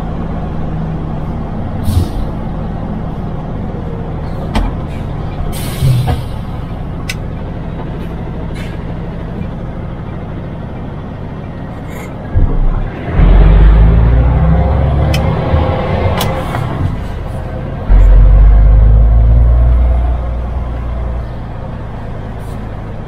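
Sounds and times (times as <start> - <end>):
truck diesel engine running: 0.0 - 23.0
brief air hisses: 5.5 - 6.4.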